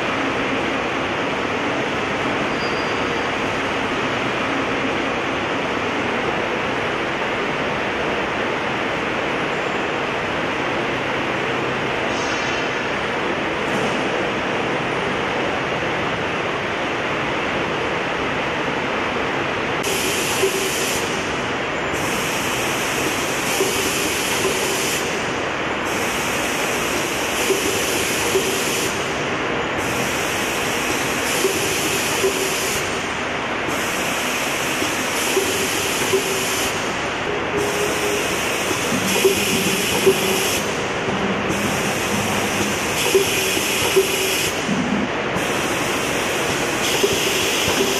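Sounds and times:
machine running: 19.7s - 47.9s
machine hiss: 19.8s - 47.9s.

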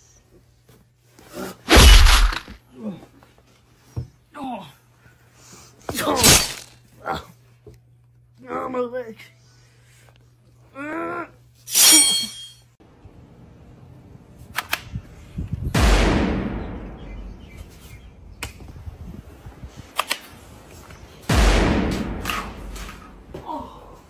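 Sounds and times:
gunshot-like blasts: 15.7s - 17.6s, 21.3s - 23.3s.

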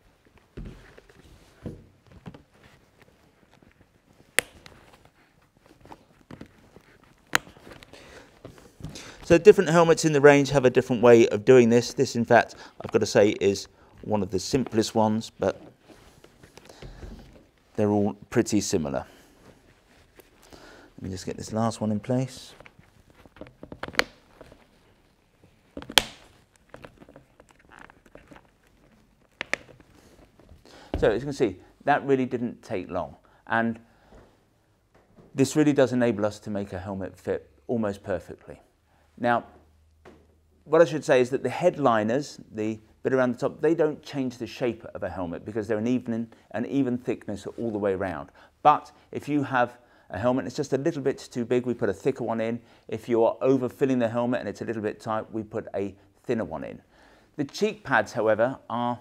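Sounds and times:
padding rustling in helmet: 0.0s - 9.3s, 13.8s - 17.8s, 18.9s - 31.3s
sharp snap: 4.4s - 4.7s, 25.9s - 26.3s.

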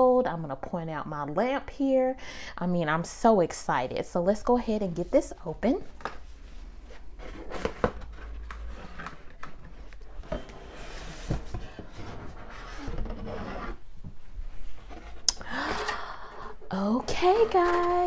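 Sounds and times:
cardboard lid scraping: 6.9s - 13.8s.

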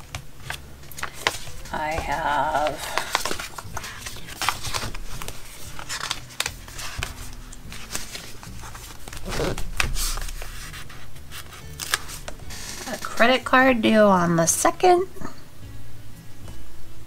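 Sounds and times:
paper pages rustling: 0.0s - 13.6s.

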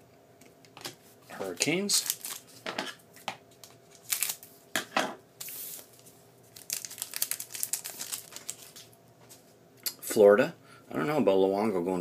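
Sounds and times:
foil wrapper crinkling: 1.4s - 2.6s, 3.6s - 4.5s, 5.4s - 9.0s.

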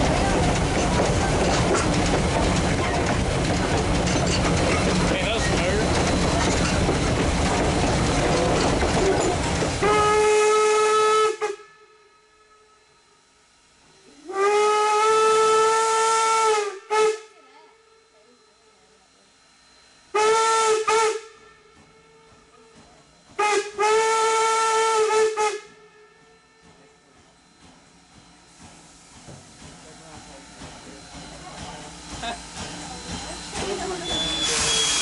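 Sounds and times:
train running noise: 0.0s - 11.6s, 13.6s - 35.0s
steam locomotive whistle blasts: 9.8s - 13.0s, 14.2s - 17.4s, 20.1s - 21.7s, 23.4s - 26.2s, 34.0s - 35.0s.

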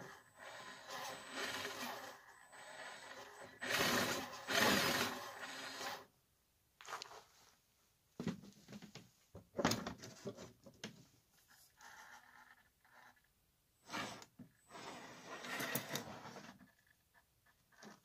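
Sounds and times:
toy car motor whirring: 0.0s - 6.1s, 11.8s - 13.3s, 13.9s - 17.1s.

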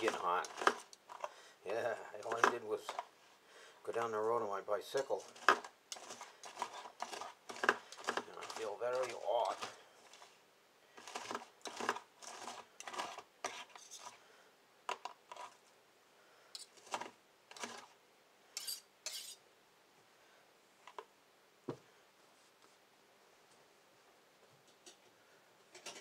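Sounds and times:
knife and fork scraping plastic tub: 0.0s - 1.3s, 2.2s - 3.1s, 4.9s - 10.4s, 11.0s - 14.2s, 14.9s - 15.6s, 16.6s - 18.0s, 18.6s - 19.4s.

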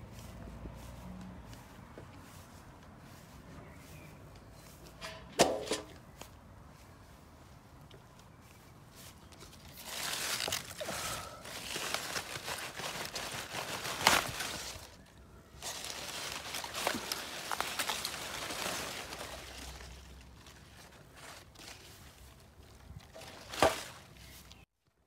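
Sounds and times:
lettuce leaves rustling: 8.4s - 24.7s
sharp crackle: 9.7s - 21.9s.

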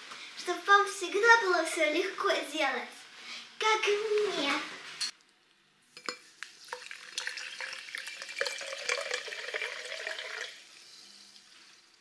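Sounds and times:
water fizzing: 6.0s - 12.0s
water pouring into a glass: 6.0s - 12.0s.

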